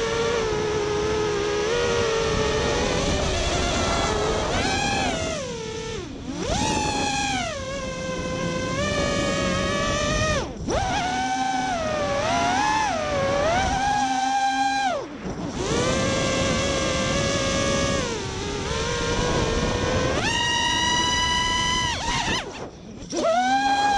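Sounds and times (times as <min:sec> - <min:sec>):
drone motors whining: 0:00.0 - 0:23.9.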